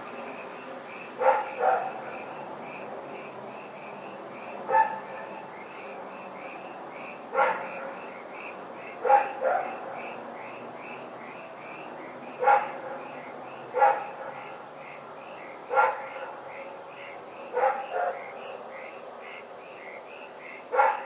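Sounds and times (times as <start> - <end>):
dog barking: 1.2 - 2.1, 4.7 - 5.3, 7.3 - 8.0, 9.0 - 9.8, 12.4 - 13.1, 13.7 - 14.4, 15.7 - 16.4, 17.5 - 18.2, 20.7 - 21.0.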